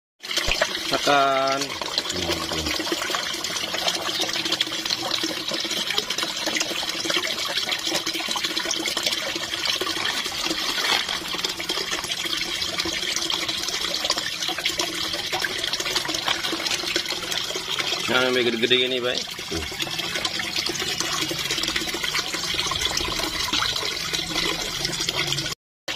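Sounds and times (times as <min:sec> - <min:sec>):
fish splashing at surface: 0:00.2 - 0:12.6, 0:13.4 - 0:18.0
water pouring into pond: 0:00.2 - 0:25.9.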